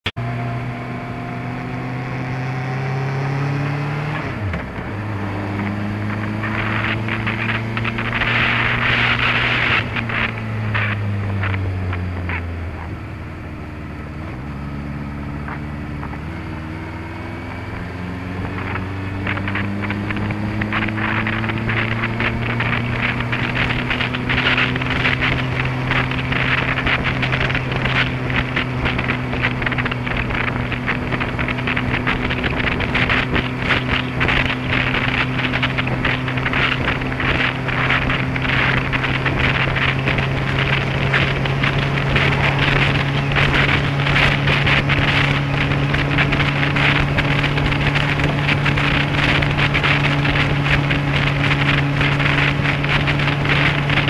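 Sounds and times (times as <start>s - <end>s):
motorcycle engine revving: 0.2s - 54.0s
wind buffeting microphone: 0.6s - 54.0s.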